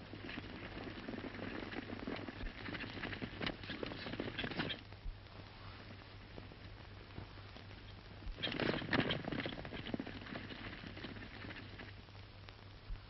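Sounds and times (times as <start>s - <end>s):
horses galloping on dirt: 0.0s - 4.8s, 8.4s - 12.0s.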